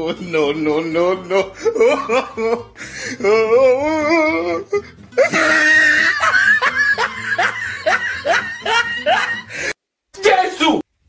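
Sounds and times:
person laughing: 0:00.0 - 0:03.5, 0:04.5 - 0:09.7
background music: 0:00.0 - 0:10.8
loud shrieking laugh: 0:05.2 - 0:09.6.

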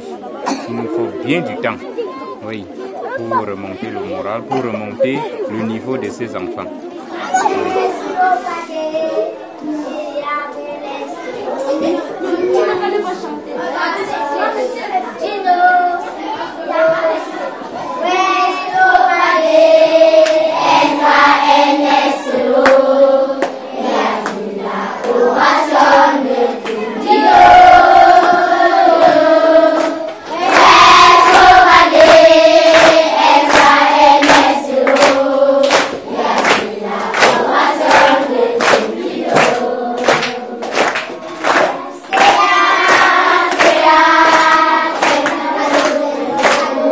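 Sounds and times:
children singing in chorus: 0:07.1 - 0:46.9
hand claps: 0:20.2 - 0:20.4, 0:22.6 - 0:22.8, 0:23.4 - 0:23.6, 0:24.2 - 0:24.4, 0:29.8 - 0:46.8.

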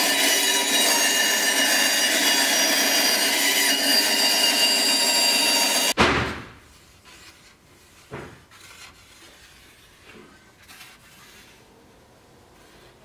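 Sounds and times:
wooden strips rubbing: 0:06.7 - 0:11.7.

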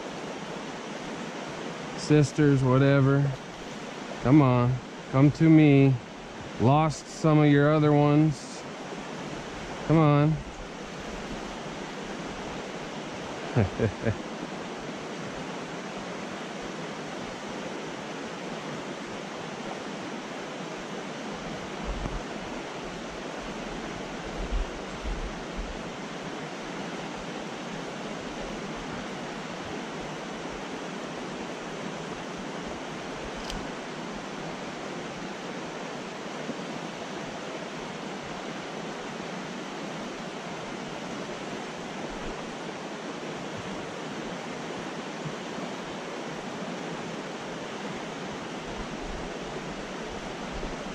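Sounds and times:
creek rushing over riffles: 0:01.8 - 0:14.4.

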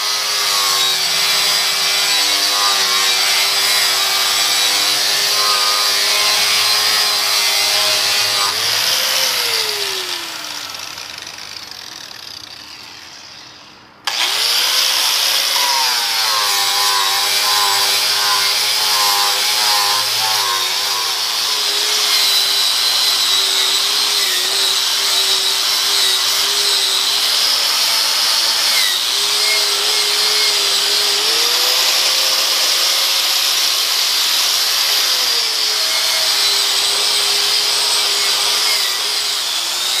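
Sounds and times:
angle grinder grinding metal: 0:00.0 - 0:40.0.

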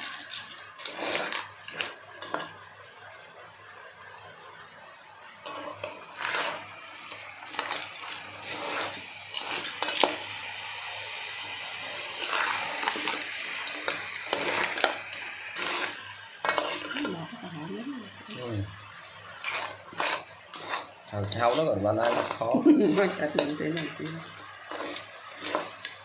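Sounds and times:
crab shells clattering in a wok: 0:00.0 - 0:02.6, 0:05.5 - 0:10.6, 0:11.5 - 0:17.1, 0:19.4 - 0:26.0
spatula stirring in a wok: 0:00.0 - 0:17.6, 0:18.2 - 0:26.0.

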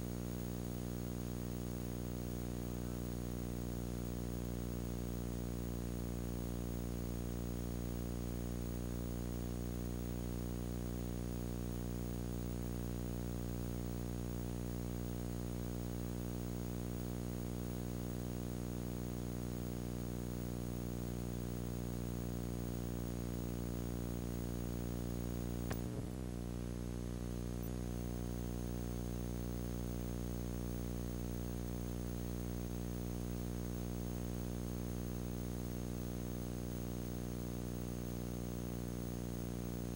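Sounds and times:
steady electrical hum: 0:00.0 - 0:39.9
click: 0:25.6 - 0:26.0.

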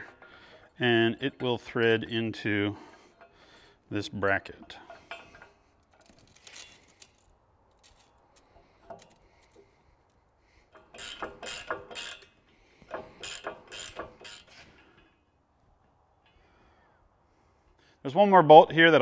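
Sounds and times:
ratchet wrench clicking: 0:10.7 - 0:14.6.

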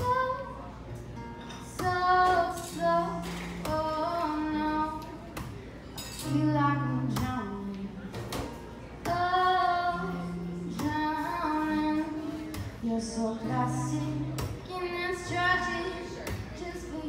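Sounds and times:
woman singing: 0:00.0 - 0:00.7, 0:01.7 - 0:05.4, 0:06.2 - 0:07.9, 0:09.0 - 0:17.0.

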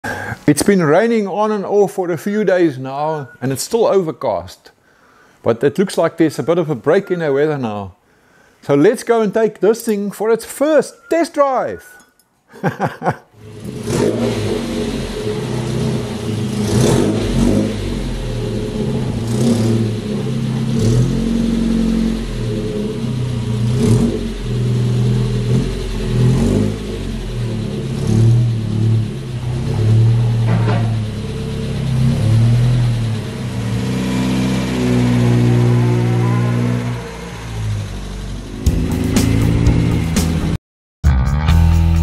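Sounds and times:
pickup engine idling and revving: 0:13.4 - 0:40.6.

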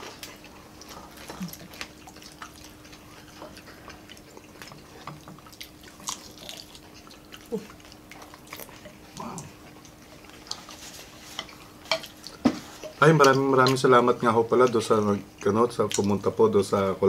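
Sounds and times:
chewing smacks: 0:00.0 - 0:16.4
faint steady hum: 0:00.0 - 0:17.0.

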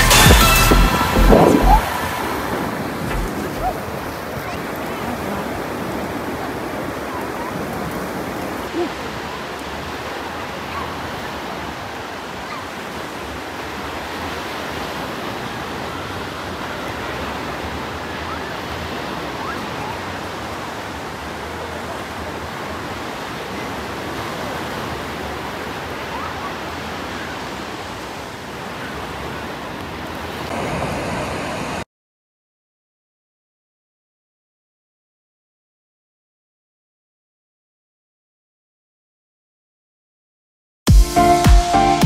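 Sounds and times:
waves breaking on beach: 0:00.0 - 0:31.8.

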